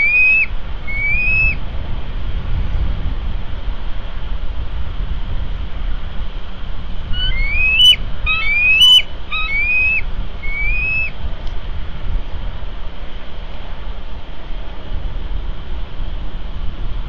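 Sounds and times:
eagle whistled calls: 0.0s - 1.6s, 7.1s - 11.2s
wind rumble on microphone: 0.0s - 17.0s.

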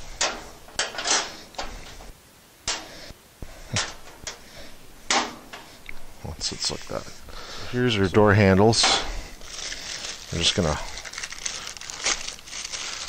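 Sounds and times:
sheet metal clunks and scrapes: 0.0s - 2.1s, 2.7s - 5.9s.

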